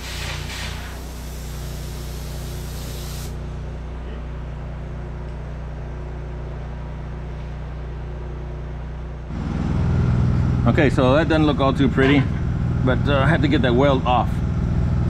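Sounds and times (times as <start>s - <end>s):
steady hiss: 0.0s - 3.4s
engine humming: 0.9s - 15.0s.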